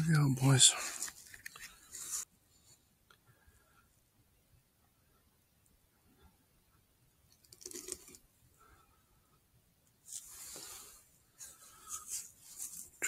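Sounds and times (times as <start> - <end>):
breathy hissing and rustling: 10.1 - 13.0.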